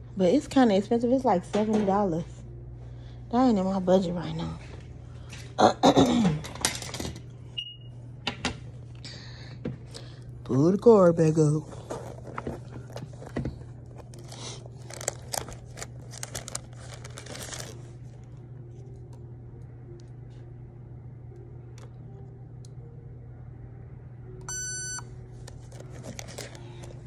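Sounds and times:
steady low hum: 0:00.0 - 0:27.0
crinkling handling noise: 0:11.2 - 0:19.2, 0:25.3 - 0:27.0
electronic beep: 0:24.5 - 0:25.1.

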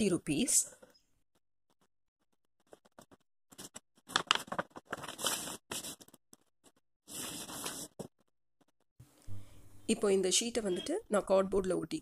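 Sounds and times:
paper rustling and crinkling: 0:02.6 - 0:08.3.

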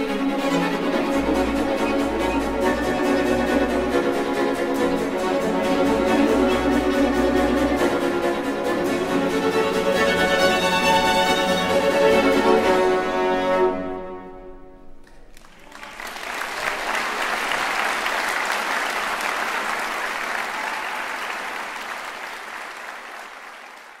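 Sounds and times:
string orchestra chord: 0:00.0 - 0:15.0
audience applause: 0:15.0 - 0:24.0.

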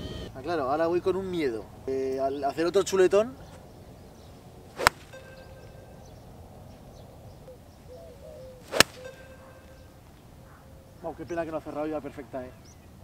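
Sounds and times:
golf club striking ball: 0:04.7 - 0:05.9, 0:08.7 - 0:10.0.

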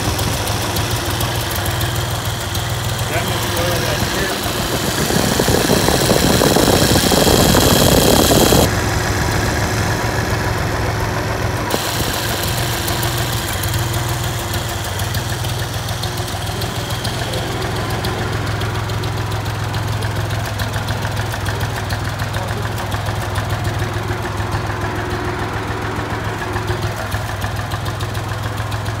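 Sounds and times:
loud rushing noise: 0:00.0 - 0:14.4
tractor engine idling: 0:00.0 - 0:29.0.

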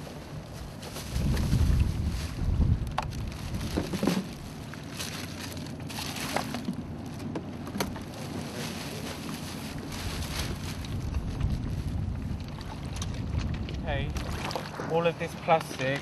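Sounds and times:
wind rumble on microphone: 0:00.0 - 0:07.0, 0:07.8 - 0:16.0
plastic bags crinkling: 0:03.1 - 0:07.2, 0:08.0 - 0:11.1.

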